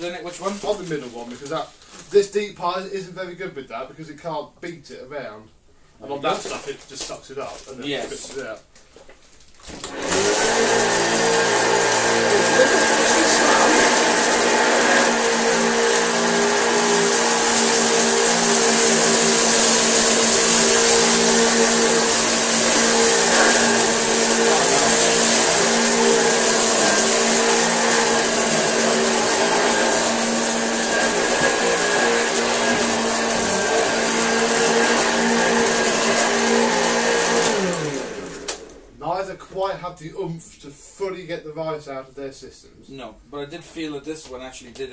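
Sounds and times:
vacuum cleaner running: 0:09.7 - 0:39.0.

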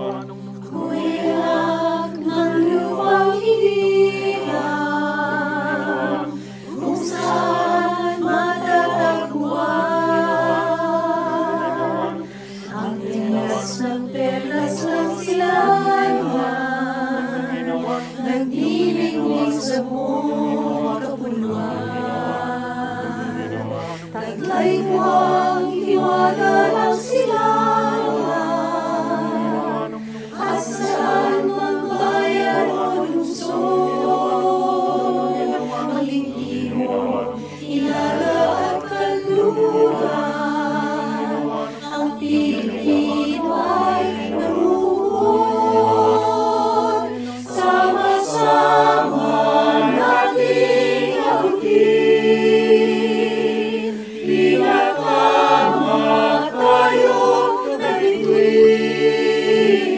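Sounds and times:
mixed choir singing a cappella: 0:00.0 - 0:59.9.

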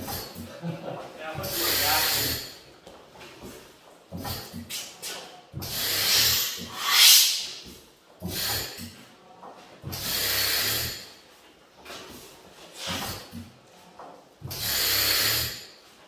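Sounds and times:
engine turning with breathy whooshes: 0:05.6 - 0:07.6.

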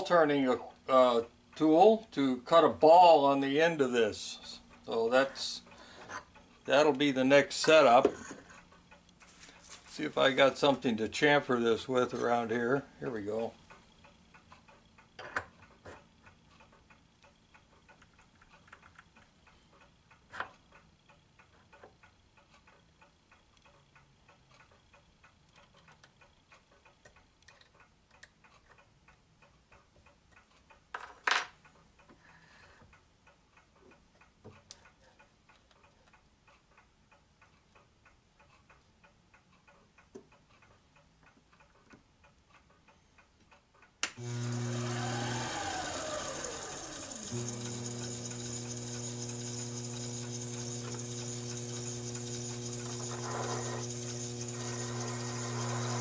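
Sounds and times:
clock ticking: 0:03.4 - 0:30.9, 0:31.6 - 0:56.0
lathe motor humming: 0:44.2 - 0:56.0.

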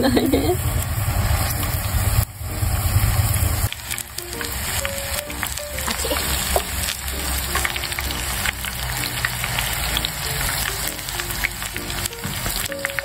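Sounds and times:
hot oil sizzling and popping: 0:00.1 - 0:13.0
light background tune: 0:03.9 - 0:13.0.

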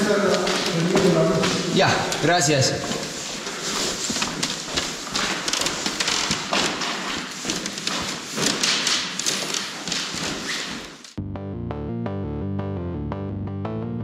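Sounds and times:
footsteps on wooden floor: 0:00.0 - 0:11.2
taps and thuds on wooden floor: 0:04.1 - 0:10.9.

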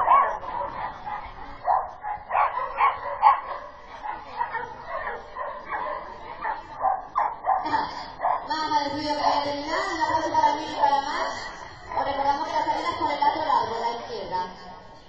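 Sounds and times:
dog barking: 0:00.0 - 0:08.5.

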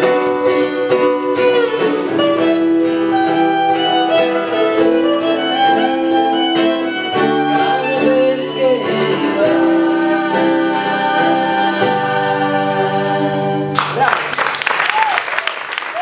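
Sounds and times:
ukulele: 0:00.0 - 0:14.1
acoustic guitar: 0:00.0 - 0:14.2
person singing: 0:00.0 - 0:14.2
violin long held notes: 0:00.6 - 0:12.8.

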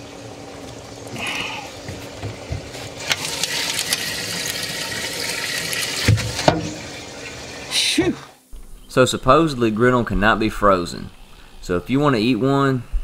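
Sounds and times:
water splashing and sloshing: 0:00.0 - 0:07.7.

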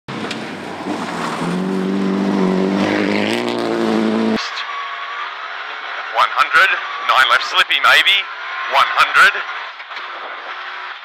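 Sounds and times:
rally car engine at full throttle: 0:00.1 - 0:11.0.

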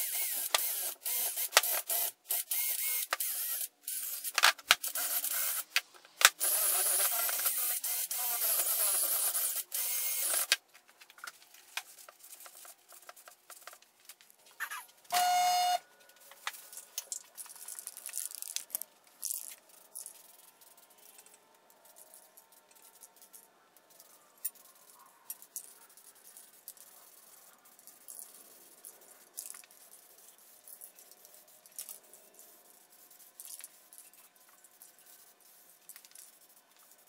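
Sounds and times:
brief loud tone: 0:15.1 - 0:15.9.

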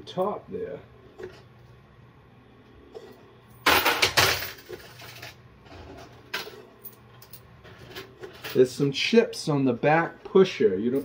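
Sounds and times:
coins clattering in machine: 0:03.6 - 0:05.4, 0:07.2 - 0:08.7.

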